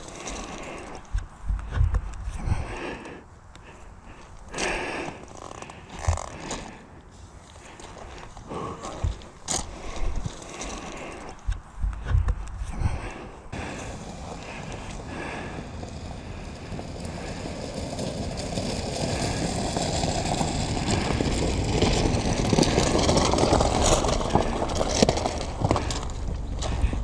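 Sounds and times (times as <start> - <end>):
footsteps on gravel: 0.0 - 3.1, 4.5 - 6.8, 7.4 - 16.4, 20.8 - 27.0
car tyres crunching on gravel: 0.0 - 27.0.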